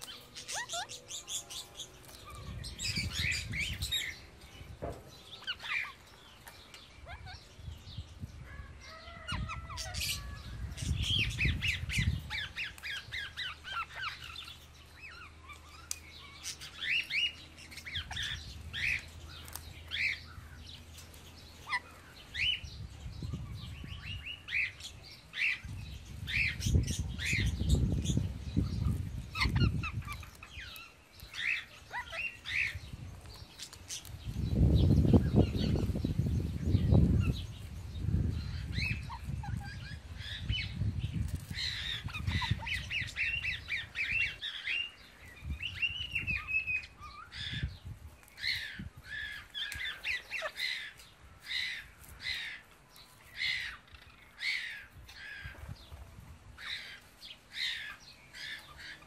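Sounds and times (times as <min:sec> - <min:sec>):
parakeets chattering: 0:00.0 - 0:07.8, 0:09.2 - 0:22.6, 0:24.0 - 0:34.4, 0:38.3 - 0:52.7.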